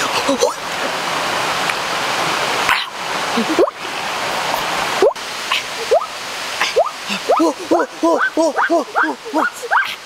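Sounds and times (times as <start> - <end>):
steady rushing hiss: 0.0 - 10.0
rising vocal exclamations: 5.0 - 10.0.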